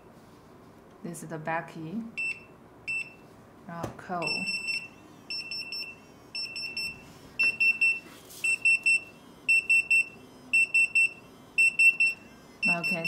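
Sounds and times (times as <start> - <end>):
high-pitched pager beeps: 4.2 - 13.0.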